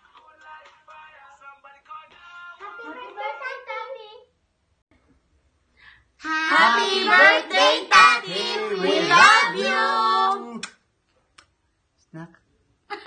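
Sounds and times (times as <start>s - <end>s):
group of voices singing: 6.2s - 10.6s.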